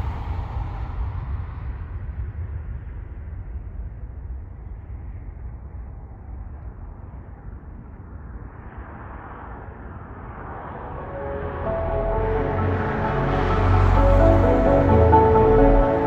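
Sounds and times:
jet engines at takeoff: 0.0s - 11.7s.

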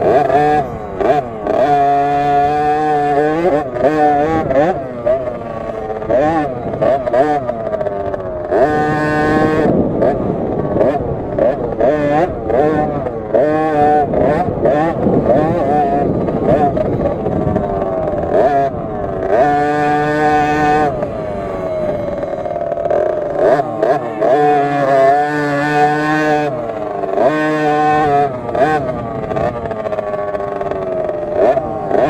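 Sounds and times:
two-stroke engine revving: 0.0s - 32.0s.

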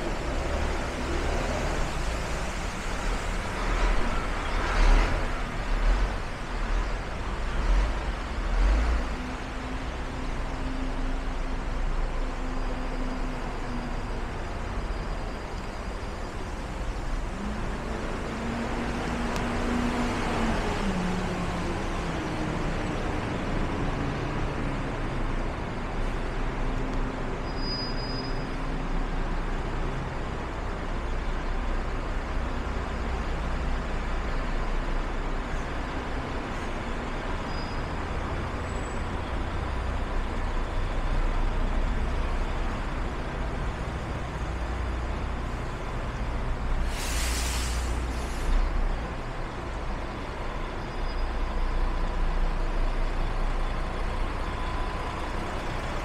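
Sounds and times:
constant traffic hiss: 0.0s - 56.0s
traffic engine rumble: 0.0s - 56.0s
air brakes hiss: 46.8s - 48.7s.

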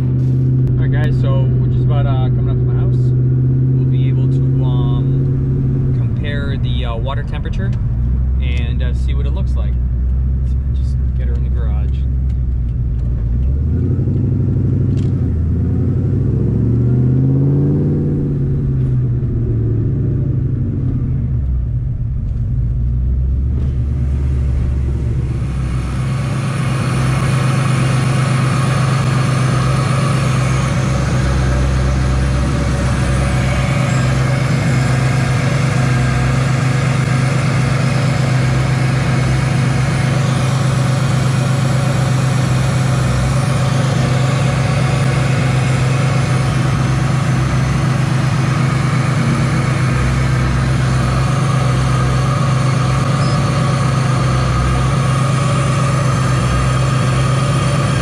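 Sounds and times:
car engine idling: 0.0s - 58.0s
car engine revving: 0.0s - 58.0s.

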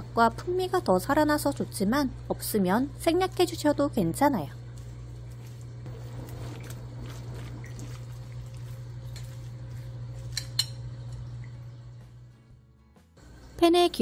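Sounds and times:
steady low hum: 0.0s - 13.9s
batter squishing in bowl: 4.5s - 10.5s.

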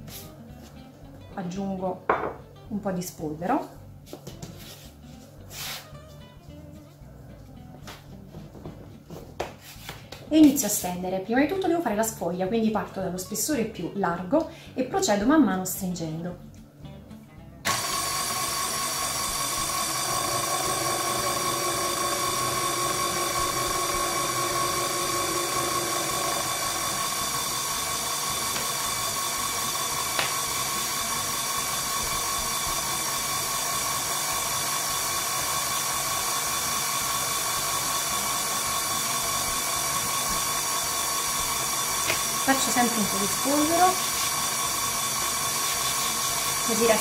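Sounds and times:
stand mixer motor whine: 17.7s - 47.0s.

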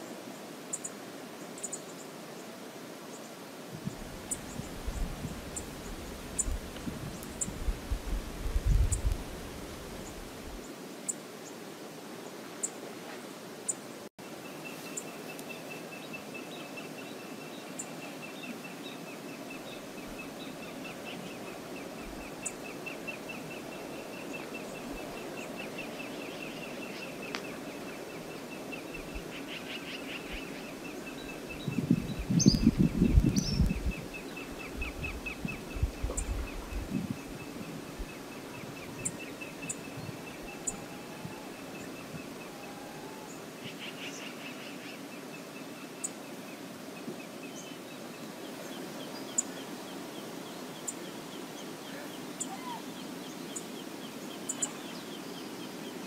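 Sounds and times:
wind: 0.0s - 56.0s
wind buffeting microphone: 3.7s - 10.6s, 31.2s - 42.5s.

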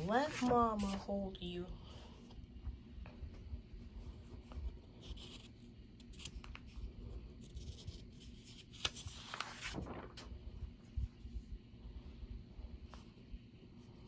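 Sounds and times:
paper rustling: 0.0s - 1.3s, 4.4s - 10.4s.

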